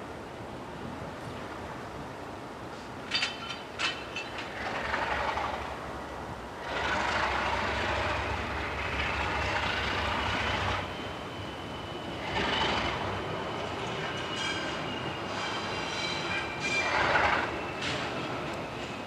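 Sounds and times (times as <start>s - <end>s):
diesel locomotive engine rumbling: 0.0s - 19.0s
sharp metallic clanks: 3.1s - 4.6s
rushing noise with rising squeal: 6.6s - 19.0s.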